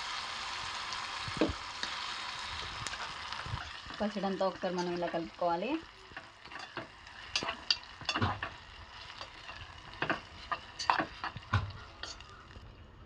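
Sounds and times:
oil sizzling: 0.0s - 13.0s
spoon clinking and scraping pot: 6.1s - 12.4s.

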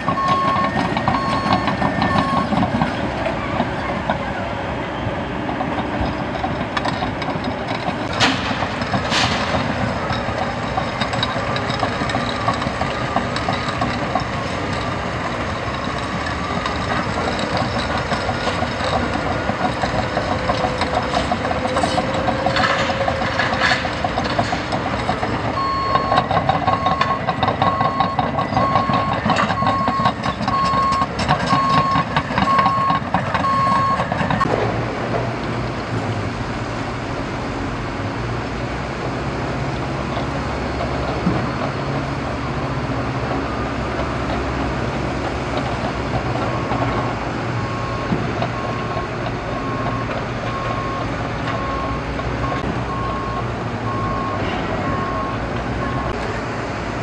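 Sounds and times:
reversing alarm beeping: 0.0s - 2.8s, 25.6s - 34.5s, 47.6s - 56.2s
diesel machinery running: 0.0s - 57.0s.

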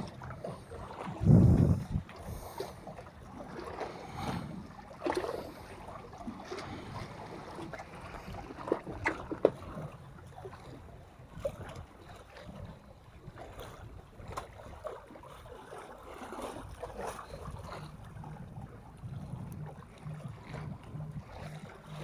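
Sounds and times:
sea water lapping against concrete: 0.0s - 22.0s
wind on microphone: 0.8s - 2.6s.

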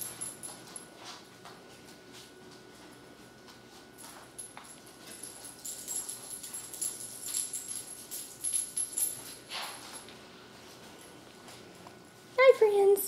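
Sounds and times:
faint metallic jingle: 0.0s - 0.9s, 4.0s - 10.2s.

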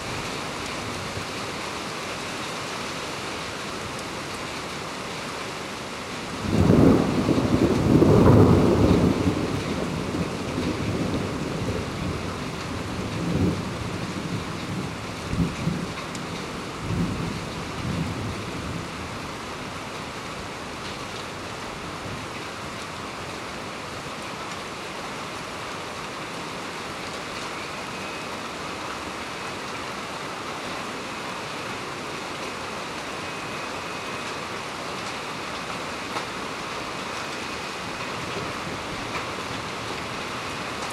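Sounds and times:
heavy rain: 0.0s - 40.9s
thunder rumbling: 6.4s - 16.0s.

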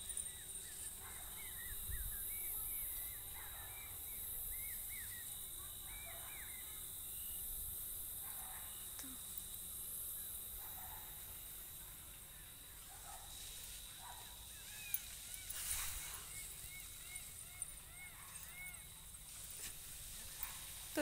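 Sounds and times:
birds chirping: 0.0s - 21.0s
steady high hiss: 0.0s - 21.0s.

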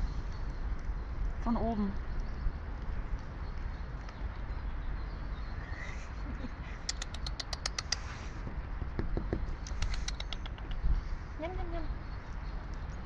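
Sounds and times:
squirrel claws clicking on wood: 6.8s - 10.9s.

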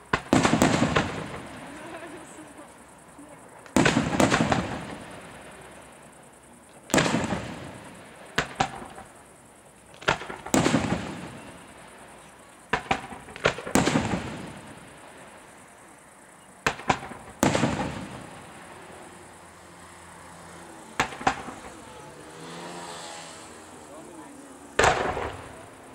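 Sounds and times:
firework shells bursting: 6.9s - 9.2s, 9.9s - 15.3s, 16.6s - 19.0s, 21.0s - 21.8s, 24.8s - 25.9s.

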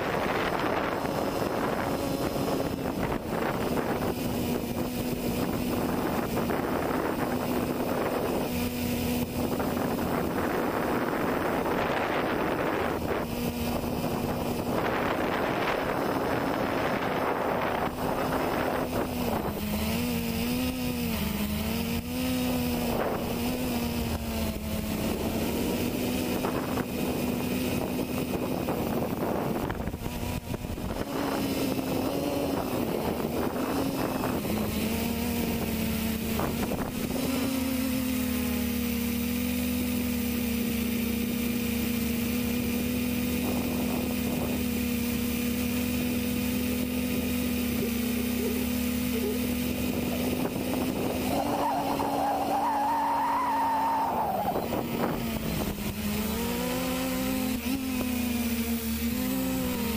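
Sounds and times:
wind on microphone: 0.0s - 21.2s, 22.1s - 37.4s, 49.5s - 57.3s
quadcopter motors buzzing: 0.0s - 59.9s.

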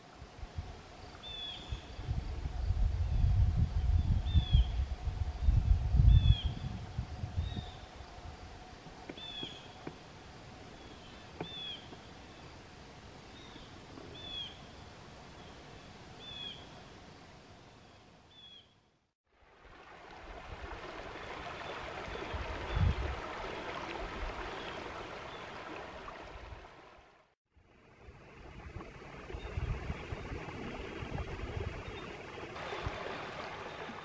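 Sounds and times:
river rushing over riffle: 32.4s - 34.0s.

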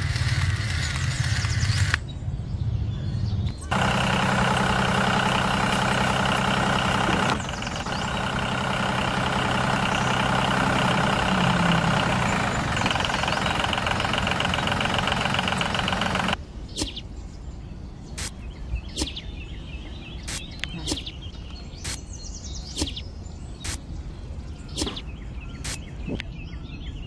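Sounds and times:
tractor engine idling: 3.7s - 16.4s.

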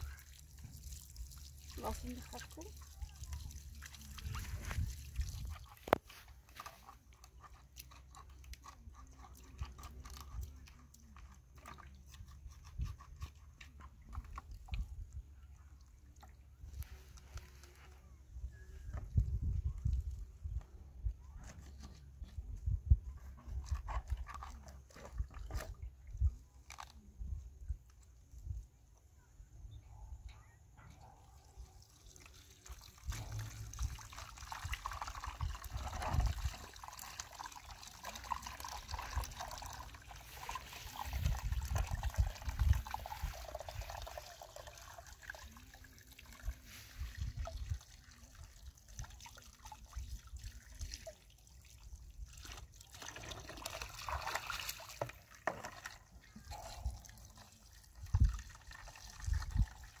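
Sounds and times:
water trickling: 0.0s - 12.2s, 31.5s - 60.0s.

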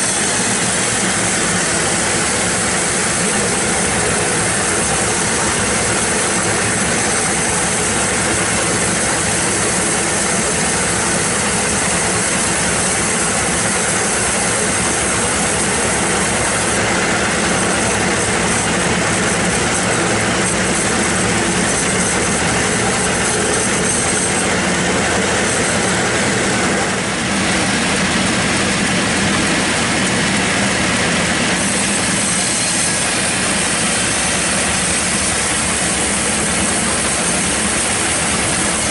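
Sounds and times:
band saw blade cutting log: 0.0s - 38.9s
sawmill drive drone: 0.0s - 38.9s.

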